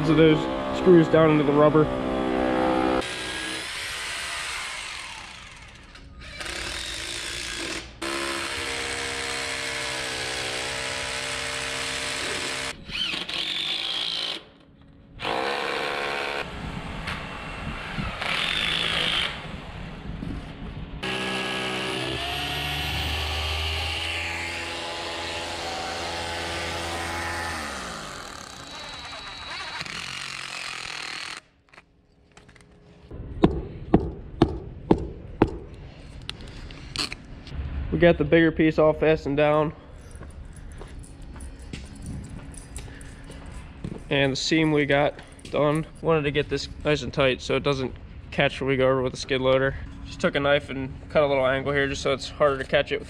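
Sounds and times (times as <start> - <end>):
cordless drill running: 3.0 - 14.4, 21.0 - 31.5.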